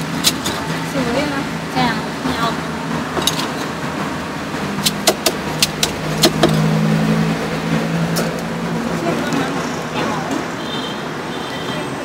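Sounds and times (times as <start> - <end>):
vehicle engine hum: 0.0 - 10.6
cleaver chopping on block: 4.8 - 6.6.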